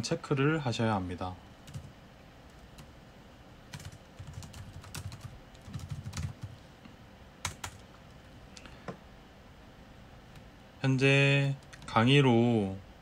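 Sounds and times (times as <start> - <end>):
typing on computer keyboard: 1.7 - 1.9, 3.7 - 6.5, 7.4 - 7.9.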